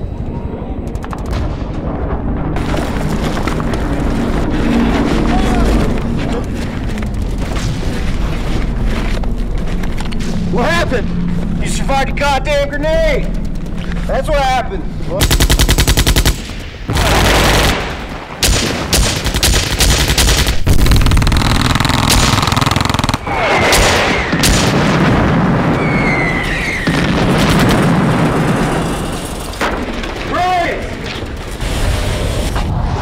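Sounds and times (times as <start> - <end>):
automatic rifle fire: 15.2 - 25.1.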